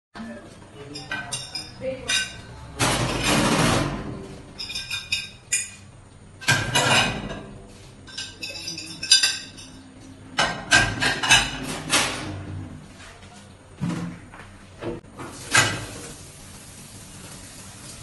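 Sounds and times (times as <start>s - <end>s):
dishes clattering in steel sink: 1.0s - 9.8s, 10.4s - 12.4s, 15.2s - 16.1s.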